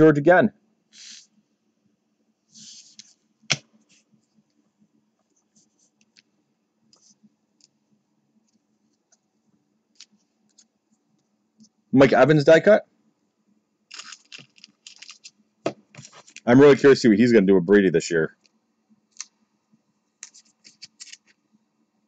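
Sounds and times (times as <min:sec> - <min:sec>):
cards sliding rustle: 0:00.9 - 0:01.3, 0:02.5 - 0:04.2, 0:13.9 - 0:16.5, 0:20.2 - 0:21.4
cards flipping ticks: 0:20.2 - 0:21.3.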